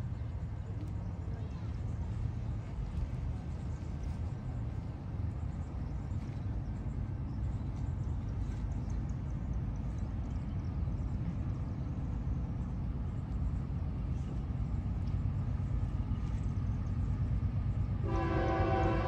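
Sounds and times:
approaching train rumble: 0:00.0 - 0:19.0
locomotive air horn: 0:18.0 - 0:19.0.

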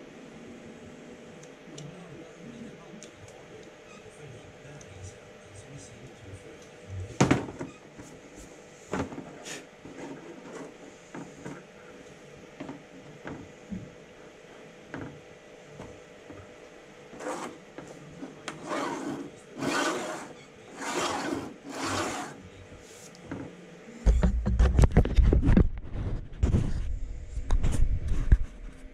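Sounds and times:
short scraping rubs: 0:17.2 - 0:17.6, 0:18.5 - 0:23.1.

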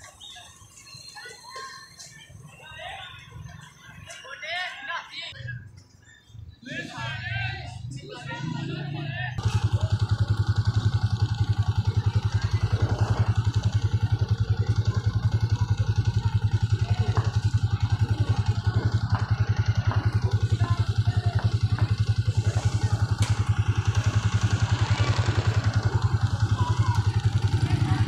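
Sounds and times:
motorcycle engine idling: 0:07.0 - 0:28.0.

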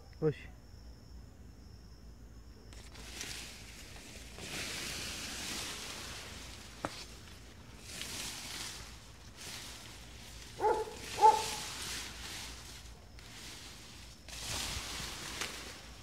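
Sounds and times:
rustling grass: 0:02.7 - 0:16.0
dog barking: 0:10.6 - 0:11.6.

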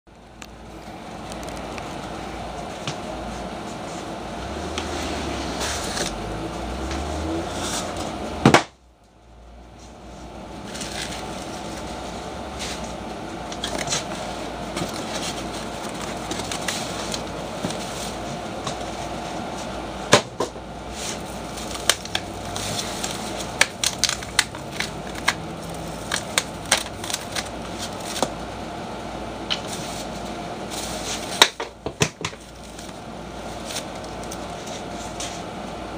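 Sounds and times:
steady background hum: 0:00.1 - 0:35.9
cardboard packaging being opened: 0:10.7 - 0:19.0, 0:20.9 - 0:28.4.

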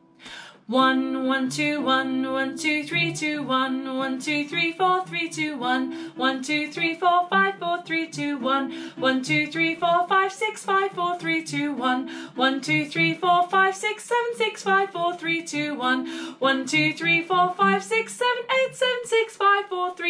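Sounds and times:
woman singing vocal warm-up: 0:00.2 - 0:20.0.

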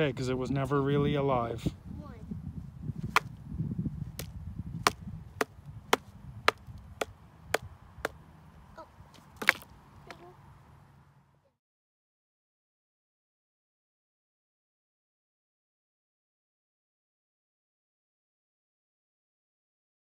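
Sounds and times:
wooden stick striking wood: 0:03.1 - 0:03.3, 0:04.2 - 0:08.2, 0:09.2 - 0:10.2.

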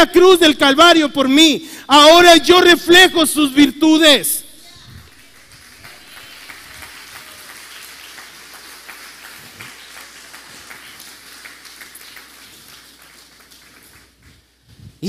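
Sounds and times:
crowd applauding: 0:04.7 - 0:14.2.

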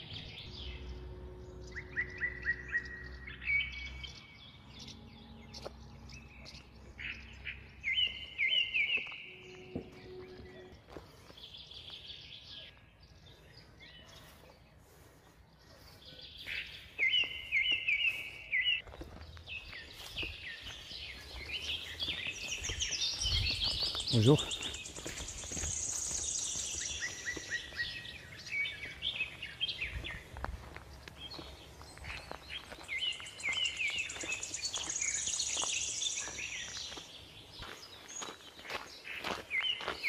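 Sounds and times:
faint outdoor background noise: 0:00.0 - 0:40.0
songbird singing: 0:00.0 - 0:40.0.

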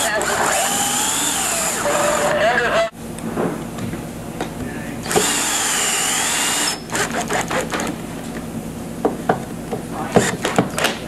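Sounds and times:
drill motor whining: 0:00.0 - 0:02.9, 0:05.0 - 0:08.0.

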